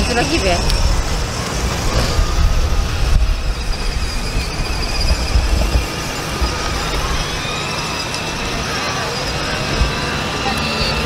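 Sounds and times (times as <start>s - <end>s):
high whine of toy ride-on motors: 0.0s - 11.0s
wind rumble on microphone: 0.0s - 11.0s.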